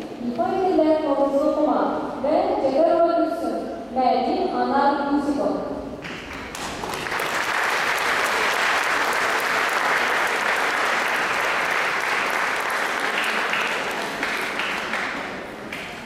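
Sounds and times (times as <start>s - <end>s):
audience applauding: 6.1s - 16.0s.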